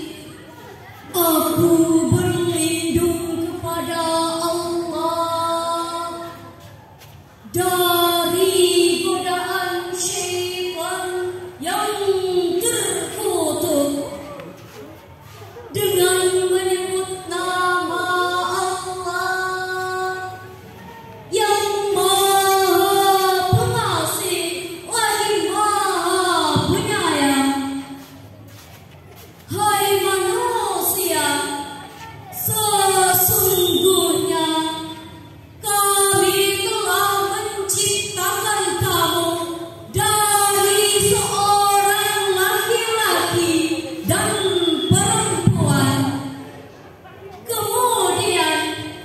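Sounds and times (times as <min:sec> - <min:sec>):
girl singing unaccompanied: 0:01.0 - 0:06.6, 0:07.4 - 0:14.0, 0:15.8 - 0:20.6, 0:21.3 - 0:28.1
woman chanting melodically: 0:01.1 - 0:06.7, 0:07.4 - 0:14.4, 0:15.7 - 0:28.3, 0:29.5 - 0:46.6, 0:47.5 - 0:49.0.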